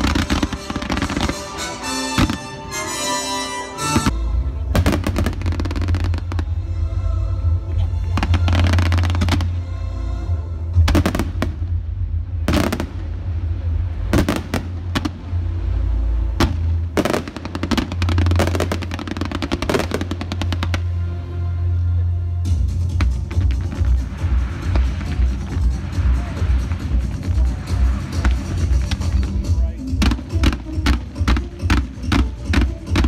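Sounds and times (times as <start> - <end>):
fireworks bangs and crackling: 0.0 - 2.9, 3.8 - 6.5, 8.1 - 9.6, 10.8 - 15.3, 16.4 - 20.9, 22.7 - 33.0
steady low rumble: 4.0 - 33.0.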